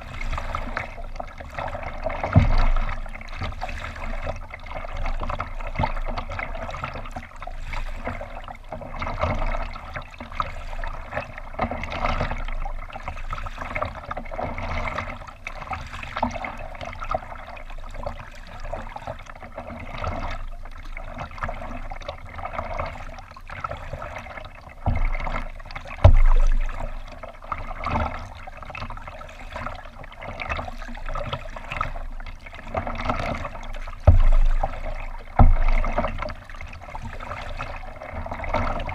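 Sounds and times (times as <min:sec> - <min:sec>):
water lapping against kayak hull: 0:00.0 - 0:38.9
low thumps: 0:26.0 - 0:26.9, 0:34.0 - 0:36.3.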